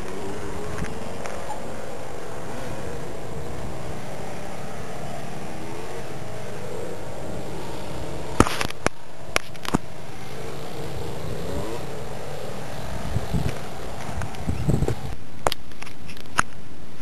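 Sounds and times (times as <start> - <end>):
wind on microphone: 0.0 - 17.0.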